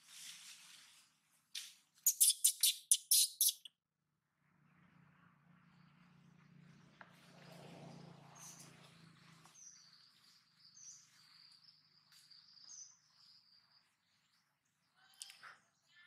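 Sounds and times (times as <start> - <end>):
short high bird chirps: 2.0 - 3.7.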